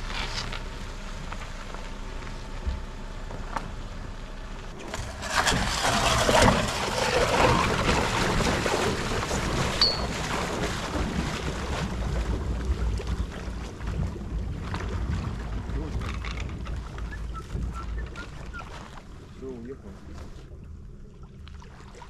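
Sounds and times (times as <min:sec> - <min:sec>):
low steady rumble: 0:00.0 - 0:22.0
wind and sea water rushing: 0:04.8 - 0:22.0.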